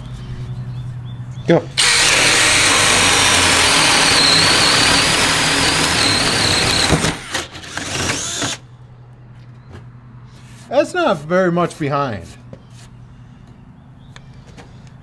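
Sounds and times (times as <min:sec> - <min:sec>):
cordless drills boring through wood: 0:01.8 - 0:08.6.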